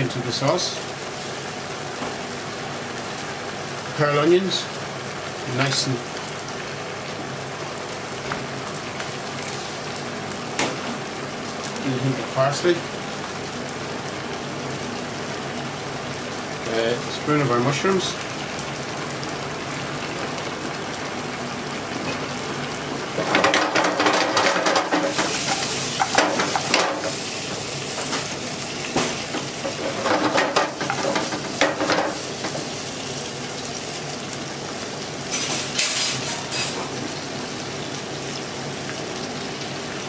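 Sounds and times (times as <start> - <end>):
sauce simmering and sizzling: 0.0 - 40.0
stirring and scraping pan: 23.2 - 27.3, 29.2 - 32.7, 35.3 - 37.0.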